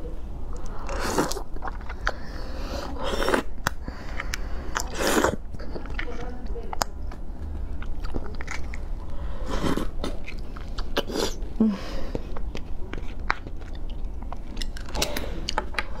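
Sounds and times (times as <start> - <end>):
wet slurping and sucking: 0.6 - 5.4.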